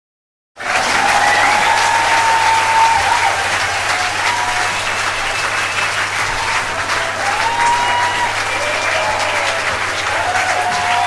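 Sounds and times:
crowd applauding: 0.6s - 11.0s
drawn-out cheers: 0.6s - 11.0s.

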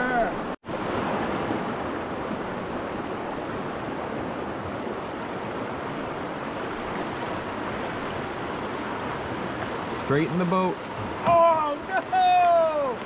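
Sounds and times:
river current rushing: 0.0s - 13.0s.

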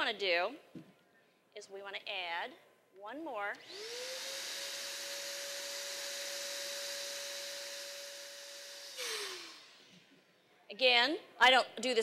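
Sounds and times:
balloon inflator motor whine: 3.6s - 10.1s
air rushing into balloon: 8.9s - 9.9s.

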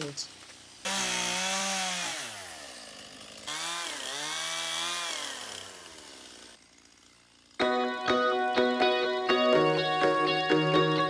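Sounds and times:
chainsaw cutting wood: 0.0s - 8.3s.

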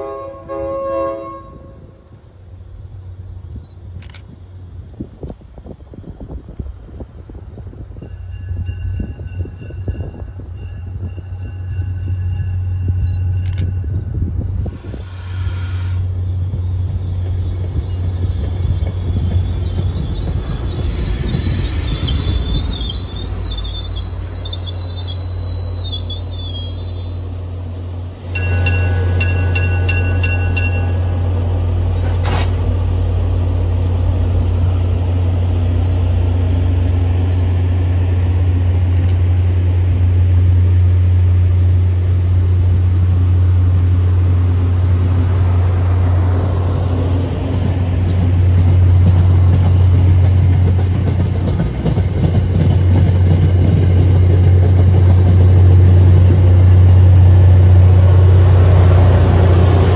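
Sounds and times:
diesel locomotive drone: 0.0s - 59.9s
train rolling past: 0.0s - 59.9s
bell ringing: 28.3s - 31.2s.

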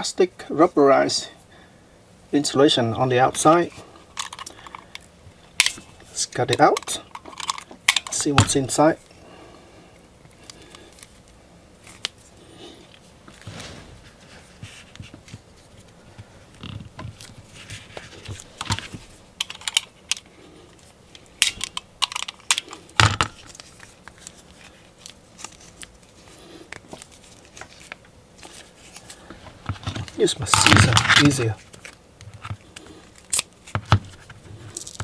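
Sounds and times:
plastic wrap crinkling and peeling: 23.3s - 30.2s.

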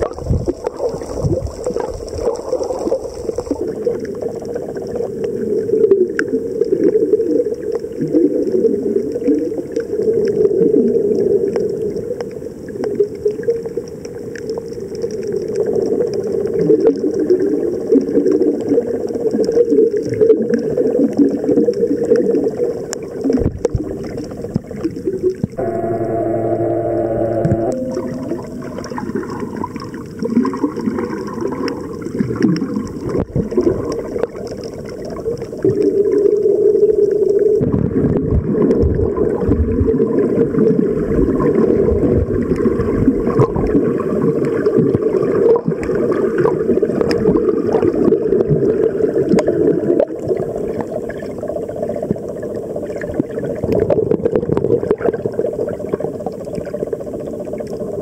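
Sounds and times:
faint underwater clicks: 0.0s - 25.6s.

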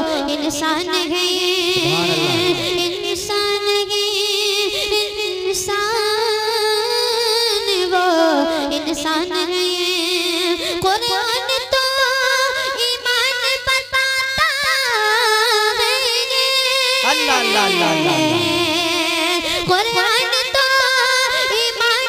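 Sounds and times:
boy singing into a microphone: 1.8s - 3.0s, 17.0s - 18.9s.

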